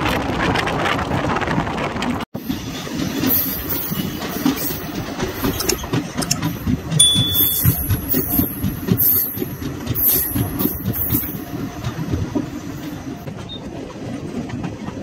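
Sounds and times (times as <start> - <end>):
clicks and rattles of train: 0.0 - 15.0
train wheels rumbling on rails: 0.0 - 15.0.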